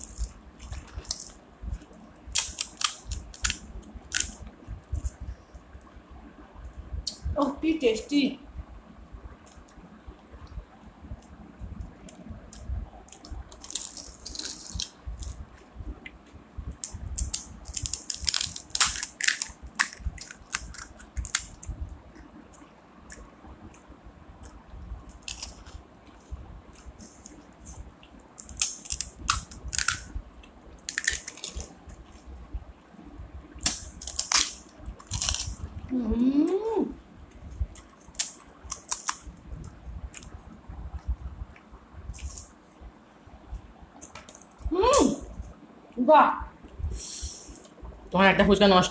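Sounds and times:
crisp shells cracking: 0.0s - 1.4s, 2.3s - 4.4s, 13.1s - 15.4s, 16.8s - 21.7s, 25.1s - 25.7s, 28.4s - 30.1s, 30.8s - 31.7s, 33.6s - 35.6s, 38.0s - 39.2s
crunching while eating: 0.0s - 5.2s, 11.9s - 15.6s, 16.7s - 32.3s, 33.6s - 35.8s, 37.7s - 40.4s.

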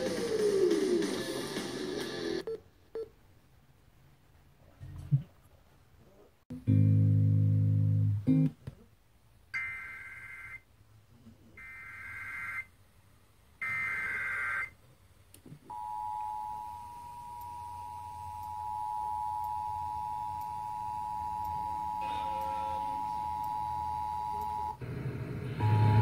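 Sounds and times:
two-tone alert signal: 20.8s - 24.8s, 25.6s - 26.0s.

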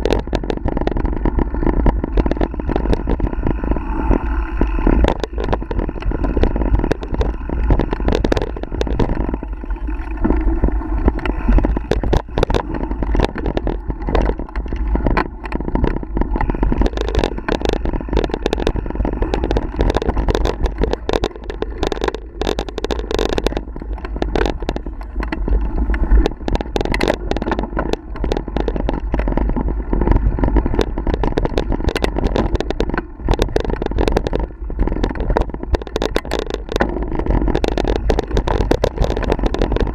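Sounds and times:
bike rattling over bumps: 0.0s - 39.9s
tyre noise on dirt trail: 0.0s - 39.9s
wind rumble on microphone: 0.0s - 39.9s.

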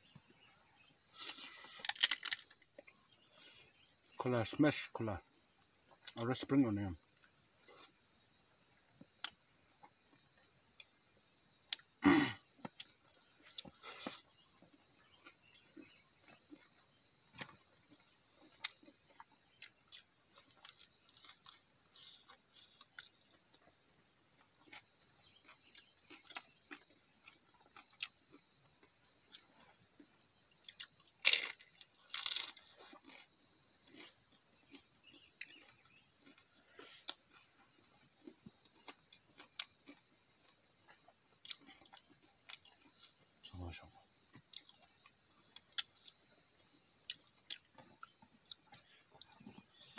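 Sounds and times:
insects chirring: 0.0s - 49.9s
chewing clicks and smacks: 17.3s - 23.8s, 24.6s - 43.7s, 44.3s - 49.9s.

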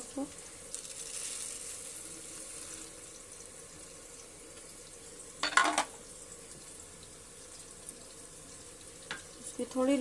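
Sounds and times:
onions sizzling in oil: 0.0s - 10.0s
spice seeds pouring onto cloth: 0.7s - 2.9s.

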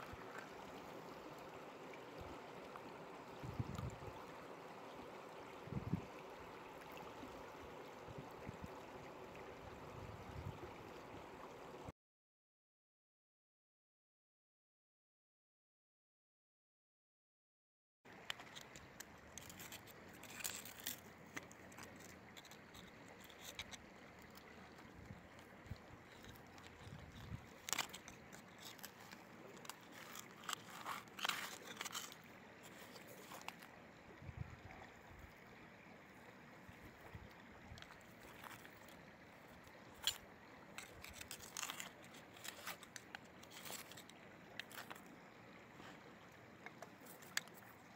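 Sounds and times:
river water hiss: 0.0s - 11.9s, 18.1s - 47.9s
metal tool scraping rock: 19.3s - 24.8s, 26.0s - 33.7s, 39.9s - 45.0s
metal tool scraping stones on rock: 26.1s - 33.6s.

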